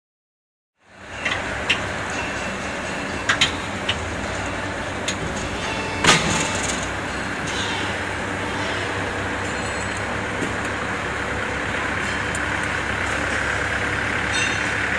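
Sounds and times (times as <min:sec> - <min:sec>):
machine humming: 0:00.9 - 0:14.9
loud clunk of mould closing: 0:06.0 - 0:06.9.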